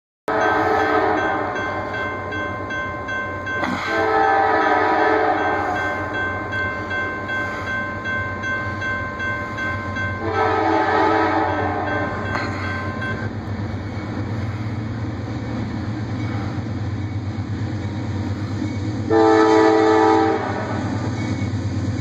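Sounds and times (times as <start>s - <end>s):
locomotive horn blasts: 0.3s - 1.6s, 3.7s - 5.8s, 10.2s - 12.2s, 19.1s - 20.9s
crossing warning bell ringing: 0.3s - 22.0s.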